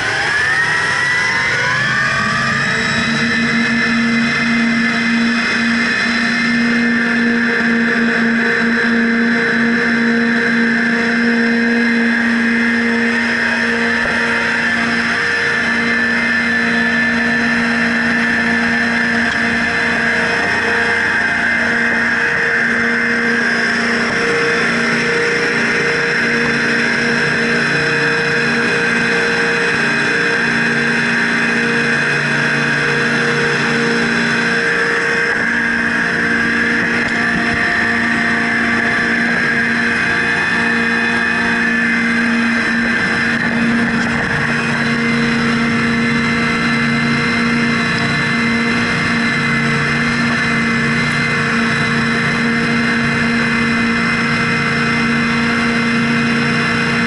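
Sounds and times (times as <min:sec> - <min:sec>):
outboard engines at high speed: 0:00.0 - 0:57.0
rush of boat wake: 0:00.0 - 0:57.0.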